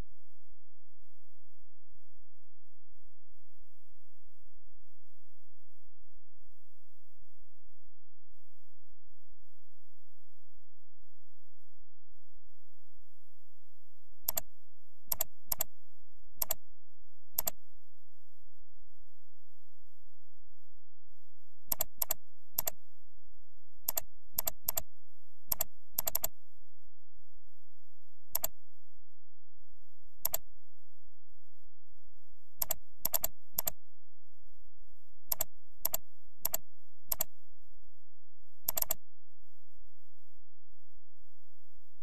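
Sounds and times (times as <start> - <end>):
mouse and keyboard clicks: 14.3 - 14.5, 15.1 - 15.7, 16.4 - 16.6, 17.4 - 17.6, 21.7 - 22.8, 23.9 - 24.9, 25.5 - 26.3, 28.3 - 28.6, 30.2 - 30.4, 32.6 - 33.8, 35.3 - 37.3, 38.7 - 39.0.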